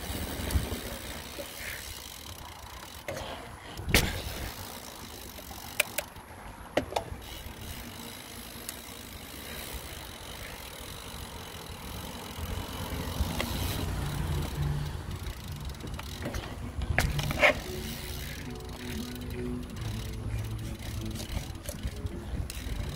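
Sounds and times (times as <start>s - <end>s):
bike riding rushing noise: 0.0s - 22.9s
sharp rattles and knocks: 15.3s - 18.7s.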